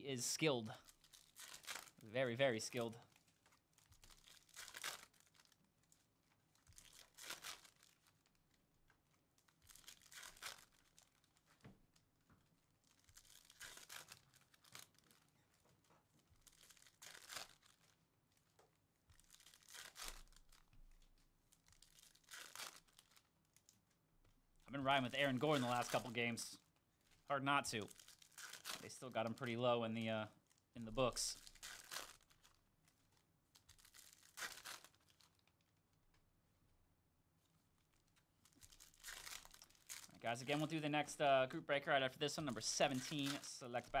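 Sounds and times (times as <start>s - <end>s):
foil wrappers tearing and crinkling: 0.9s - 2.0s, 2.6s - 6.0s, 6.6s - 8.4s, 9.4s - 11.5s, 12.8s - 15.2s, 16.4s - 18.0s, 19.1s - 23.7s, 25.3s - 26.1s, 27.8s - 29.5s, 31.1s - 32.6s, 33.6s - 35.5s, 38.4s - 40.7s, 42.6s - 43.9s.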